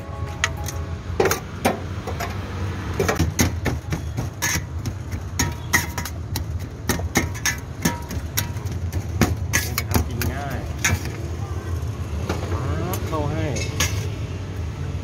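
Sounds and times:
metal spatula clanking on tray: 4.4 - 4.8, 5.4 - 6.2, 6.9 - 11.2, 13.5 - 14.1.

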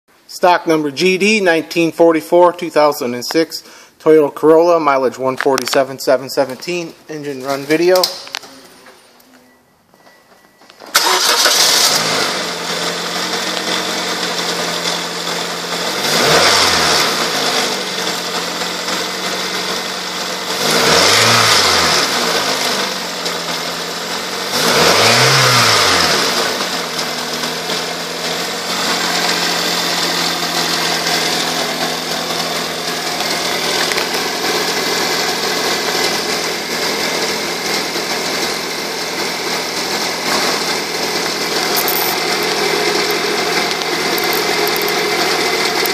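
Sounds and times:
car engine starting and revving: 10.9 - 45.9.

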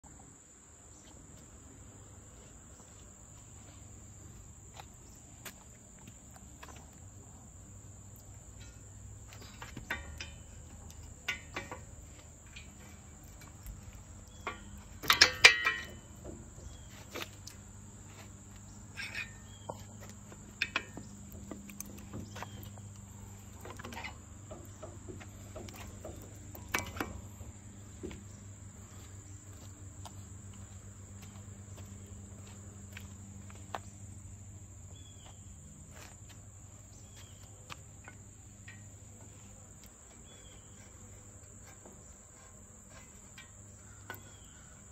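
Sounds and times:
metal clinks and clanks: 8.5 - 12.8, 14.3 - 16.2, 18.9 - 19.8.

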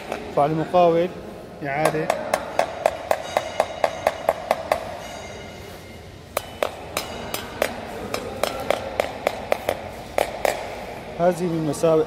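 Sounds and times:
rod tapping on ceramic tiles: 6.4 - 10.7.

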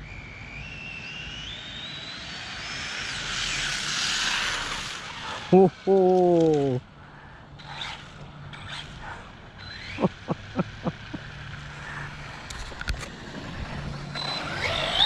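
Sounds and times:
electric motor whining: 7.6 - 15.0.

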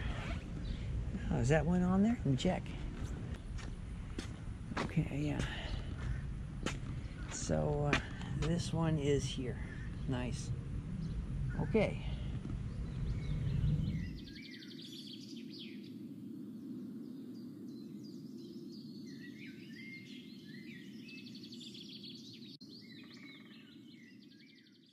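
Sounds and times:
heavy low rumble: 0.0 - 14.3
steady low hum: 0.0 - 14.4
small birds chirping: 0.0 - 24.9.

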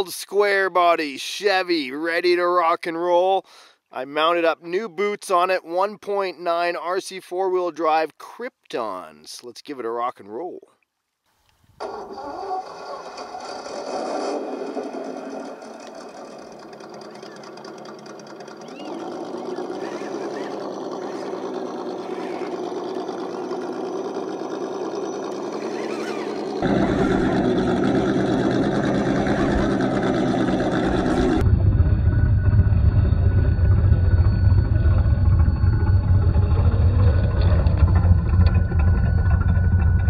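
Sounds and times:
simulated engine sound: 11.8 - 40.0
electric motor and gears running: 13.3 - 40.0.

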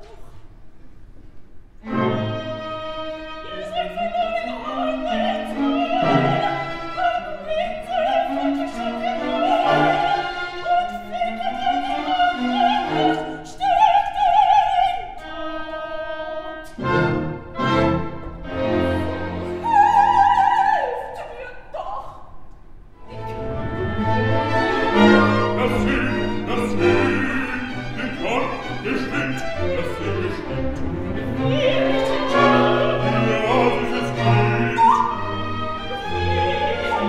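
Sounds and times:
orchestra playing: 1.8 - 13.7, 16.7 - 20.3, 22.9 - 37.0
woman singing opera: 2.0 - 16.8, 19.0 - 22.4, 31.2 - 37.0.

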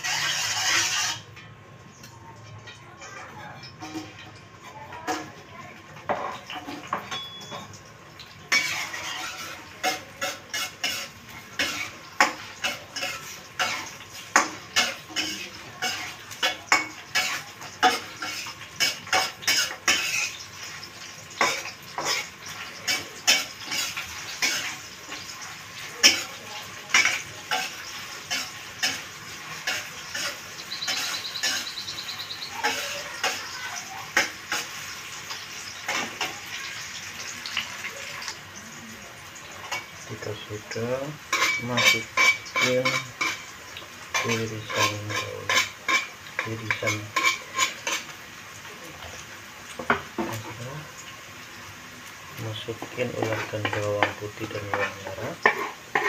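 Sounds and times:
metal spatula scraping pan: 0.0 - 1.5, 8.5 - 20.4, 21.4 - 25.3, 26.0 - 35.0, 41.3 - 43.5, 44.1 - 48.1, 52.8 - 56.0
onion sizzling in oil: 0.0 - 56.0.

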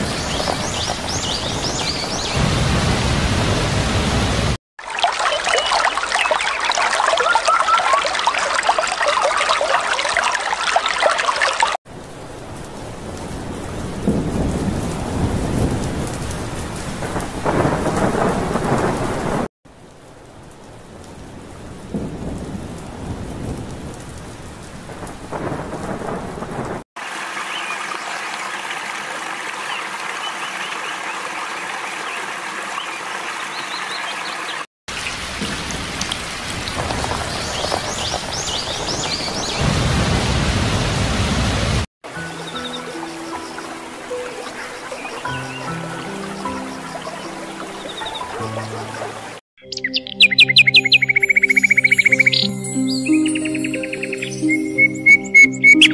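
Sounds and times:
rolling thunder: 0.0 - 4.6, 12.2 - 19.5, 21.4 - 26.8, 35.2 - 41.9
heavy rain: 0.0 - 49.4
stream water flowing: 4.8 - 11.8, 27.0 - 39.6, 42.0 - 49.4.

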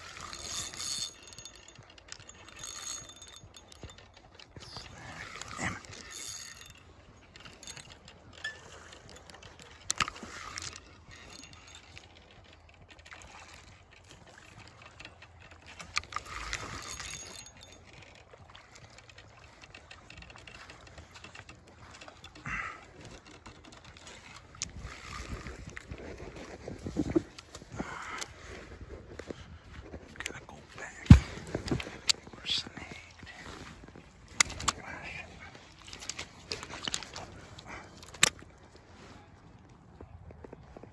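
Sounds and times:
fishing reel drag ticking: 0.0 - 26.6, 33.0 - 38.5.

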